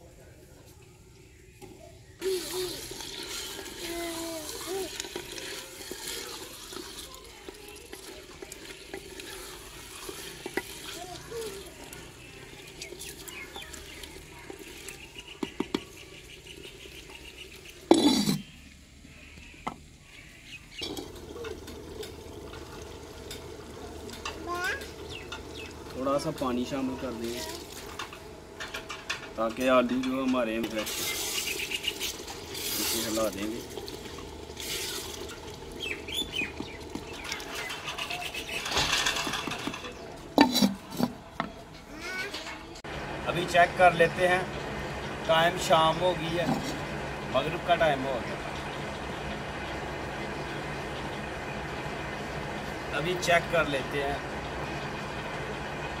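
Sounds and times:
birds chirping: 0.0 - 56.0
low sizzle of cooking: 0.0 - 56.0
wooden spatula stirring in pot: 2.4 - 18.1, 27.4 - 41.5
spatula scraping clay pot: 36.6 - 41.2.

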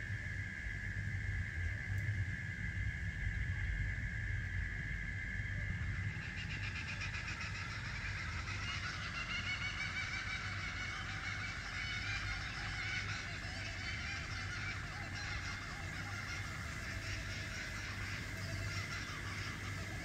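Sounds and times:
shrill rapidly pulsing insect calls: 0.0 - 20.0
high steady drone: 4.3 - 20.0.

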